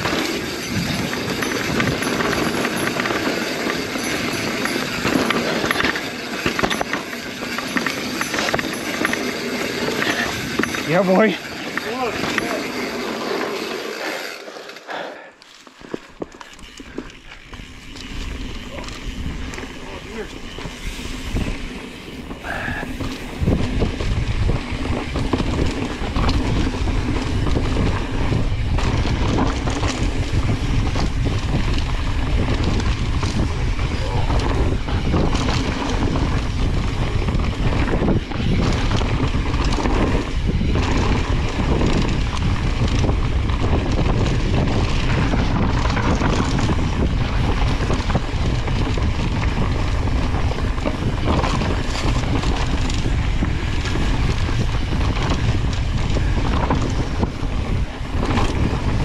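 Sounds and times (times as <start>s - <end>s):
wind buffeting microphone: 0.0s - 12.6s, 16.2s - 59.0s
bike rattling over rough ground: 0.0s - 59.0s.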